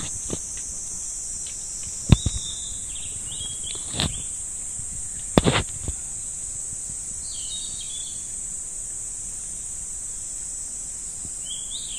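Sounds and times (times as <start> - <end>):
high-pitched hiss: 0.0 - 11.9
bird chirping: 0.8 - 4.4, 7.2 - 8.4, 11.4 - 11.9.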